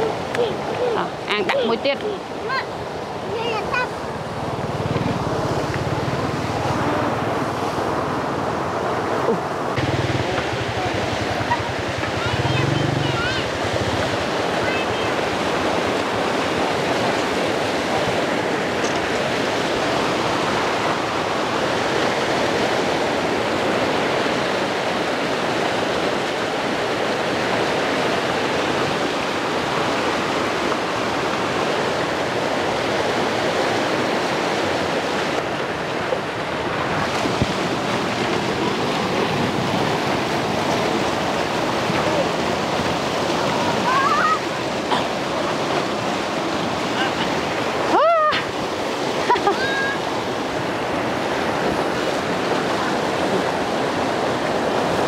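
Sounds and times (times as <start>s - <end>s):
river rushing: 0.0s - 55.0s.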